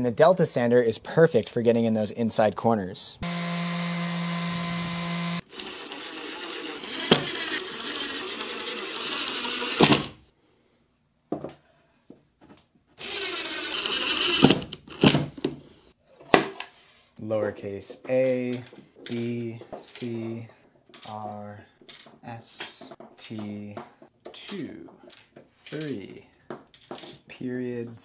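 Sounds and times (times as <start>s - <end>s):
electric sander sanding plywood: 3.2s - 10.0s.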